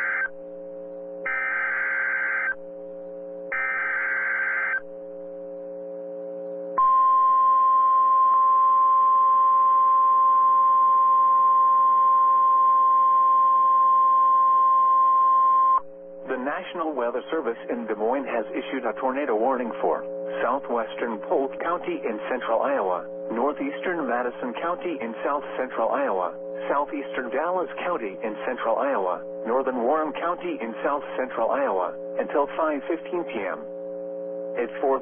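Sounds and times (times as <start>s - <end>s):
steady alarm tone: 0.0s - 13.9s
buzzy digital data bursts: 1.3s - 2.6s, 3.5s - 4.8s.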